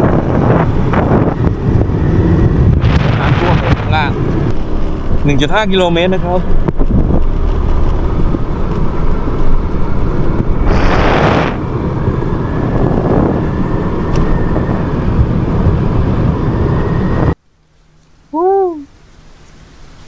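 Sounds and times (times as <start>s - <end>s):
vehicle running: 0.0s - 17.4s
wind buffeting microphone: 0.0s - 17.4s
bright hissing rush: 10.6s - 11.7s.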